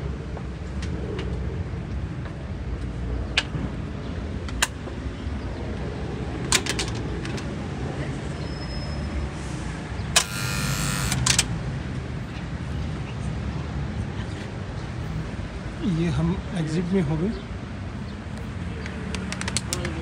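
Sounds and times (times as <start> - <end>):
low traffic rumble: 0.0 - 20.0
electric gate lock buzzing: 10.2 - 11.5
sharp clicks: 10.2 - 11.5.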